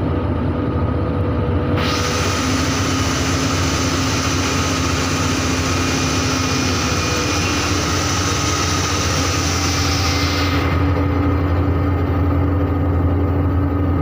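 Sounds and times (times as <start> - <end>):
drilling rig engine humming: 0.0 - 14.0
loud even hiss: 1.8 - 11.8.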